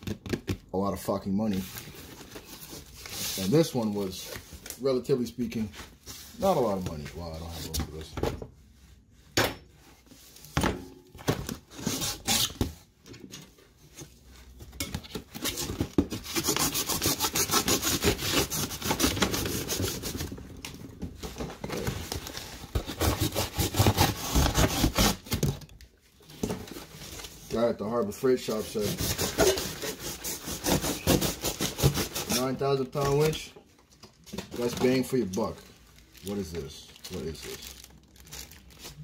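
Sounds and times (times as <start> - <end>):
cardboard scraping and rubbing: 15.4 - 20.3, 21.3 - 25.4, 28.4 - 33.4
cardboard being torn: 22.8 - 25.6.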